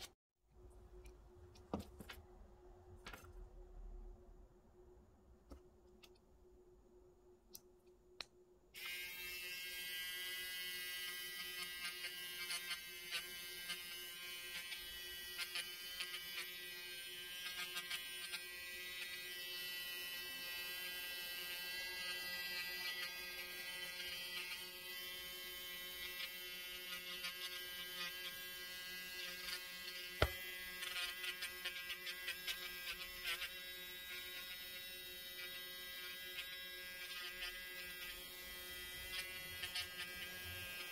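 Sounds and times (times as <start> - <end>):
electric nail drill whining: 8.8 - 40.9.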